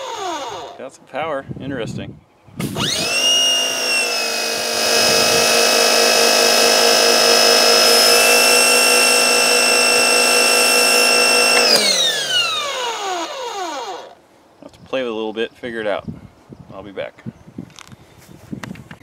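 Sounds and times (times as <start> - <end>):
pressure washer motor whine: 2.6 - 14.1.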